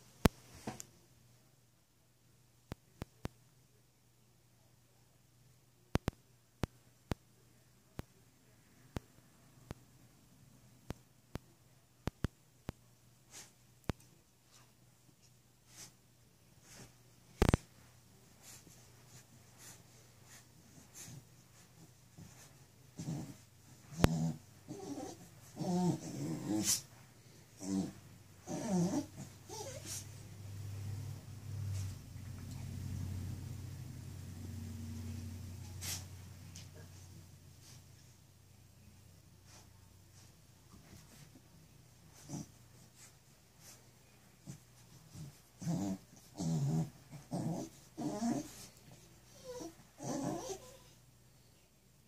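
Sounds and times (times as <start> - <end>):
dog grunting and groaning: 23.0 - 26.9, 27.5 - 30.1, 42.1 - 43.1, 44.4 - 50.9.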